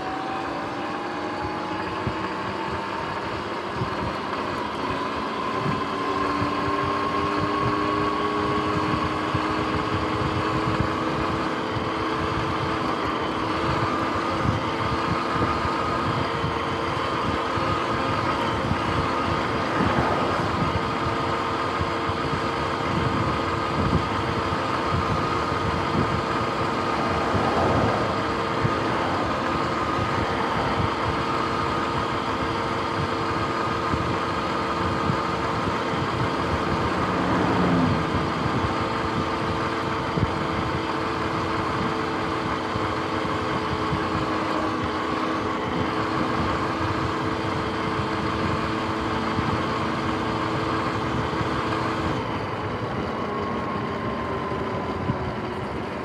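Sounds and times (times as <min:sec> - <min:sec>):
electric motor whine: 0:00.0 - 0:56.0
road noise: 0:00.0 - 0:56.0
wind rush: 0:18.5 - 0:42.0.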